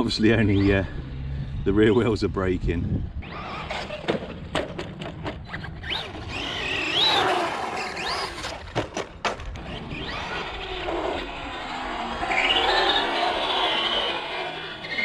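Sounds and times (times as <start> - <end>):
electric motor whining: 0.2 - 2.2, 3.0 - 4.4, 5.4 - 15.0
tyre noise on asphalt: 3.2 - 15.0.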